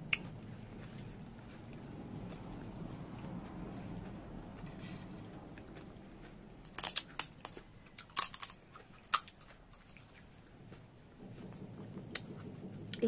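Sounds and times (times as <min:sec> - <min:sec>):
faint chewing: 0:00.0 - 0:13.0
crisp shell cracking: 0:06.6 - 0:09.5.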